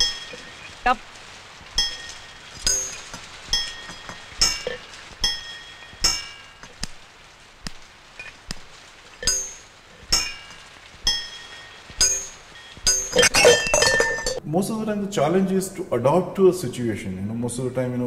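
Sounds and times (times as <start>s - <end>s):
metallic clinks: 0.0s - 1.0s, 1.6s - 7.1s, 8.2s - 14.4s.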